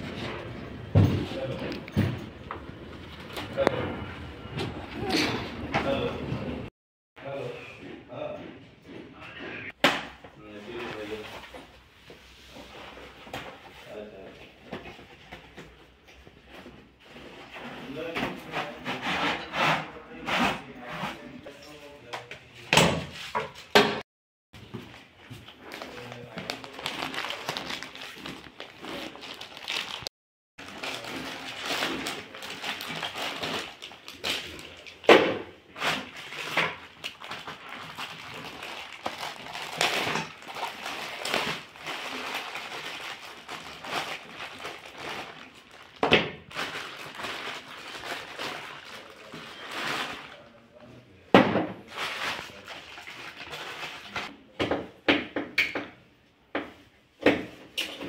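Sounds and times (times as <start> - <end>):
plastic bags crinkling: 25.5 - 35.1, 35.7 - 50.6, 51.8 - 54.3.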